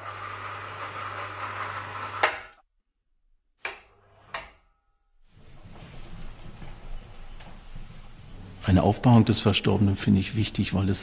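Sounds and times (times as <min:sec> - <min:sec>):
electric winch humming: 0:00.0 - 0:02.3.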